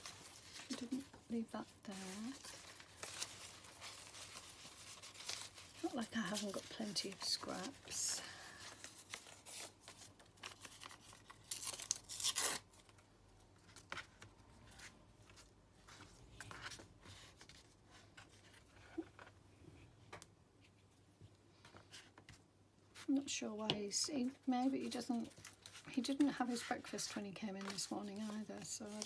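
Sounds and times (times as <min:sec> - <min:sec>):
paper rustling: 0:00.0 - 0:13.0, 0:24.0 - 0:29.0
paper tearing: 0:10.6 - 0:12.7.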